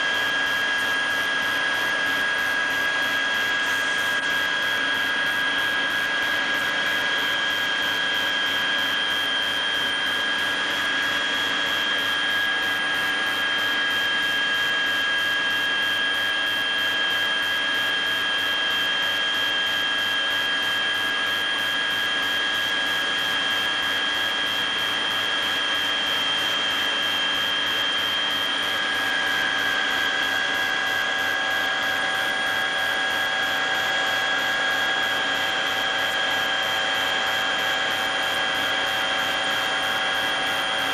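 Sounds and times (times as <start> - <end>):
aircraft engine rush in cabin: 0.1 - 17.3, 23.2 - 38.1.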